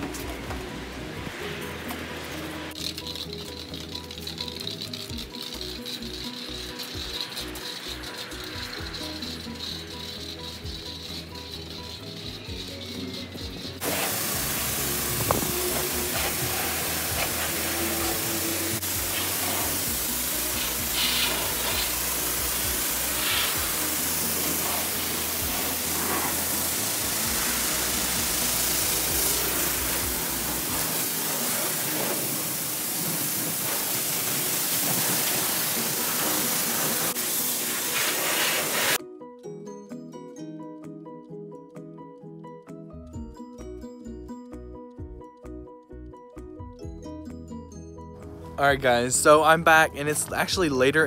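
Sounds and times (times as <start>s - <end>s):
pressure washer spraying water: 0.0s - 39.0s
music: 0.0s - 51.0s.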